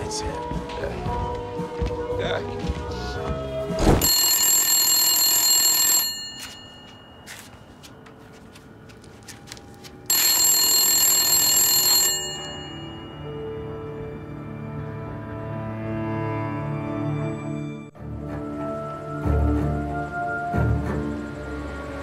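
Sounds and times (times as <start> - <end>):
telephone bell ringing: 4.0 - 7.9, 10.1 - 14.0.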